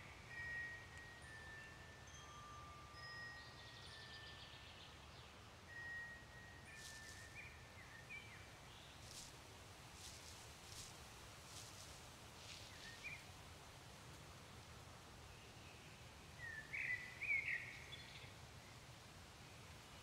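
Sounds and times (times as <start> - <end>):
high chime-like tones: 0.3 - 4.6.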